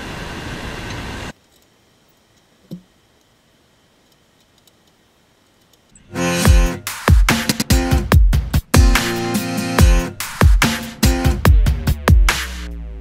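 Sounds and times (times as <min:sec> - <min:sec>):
outdoor background noise: 0:00.0 - 0:06.0
faint ticks: 0:04.0 - 0:06.0.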